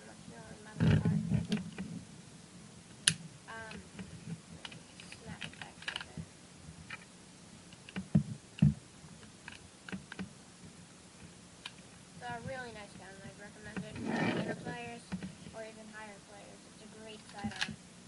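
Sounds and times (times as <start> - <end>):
toy pistol parts clicking: 4.6 - 6.1, 17.2 - 17.7.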